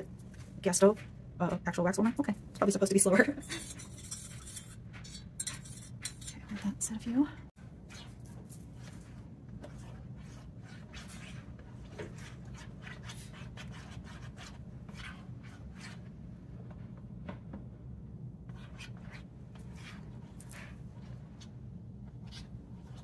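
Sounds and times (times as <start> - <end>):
steady low hum: 0.0 - 23.0
stick scraping wax in a pot: 3.4 - 6.7.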